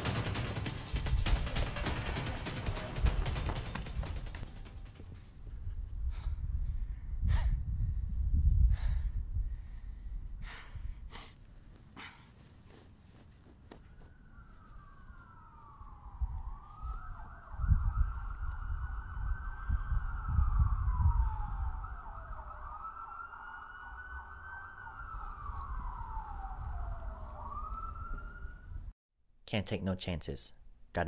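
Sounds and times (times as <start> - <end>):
emergency siren wailing: 13.8 - 28.9.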